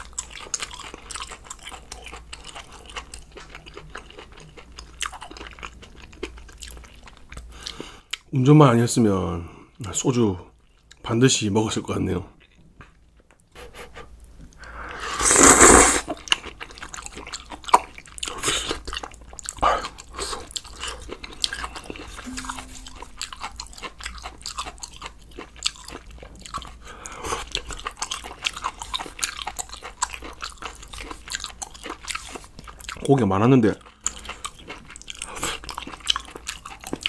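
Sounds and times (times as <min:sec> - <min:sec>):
person slurping noodles: 0:14.9 - 0:16.2.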